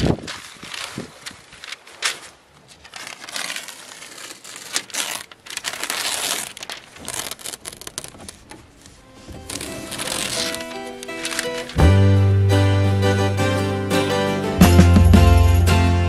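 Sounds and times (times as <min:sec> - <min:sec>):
paper crinkling and tearing: 0:00.0 - 0:11.8.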